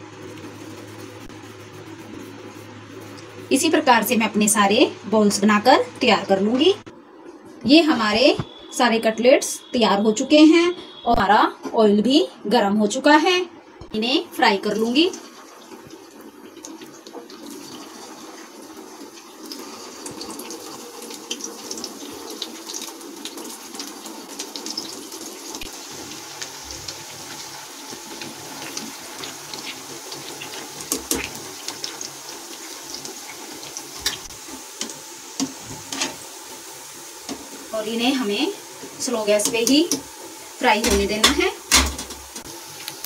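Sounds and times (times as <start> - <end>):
food deep-frying in oil: 12.9 - 43.0.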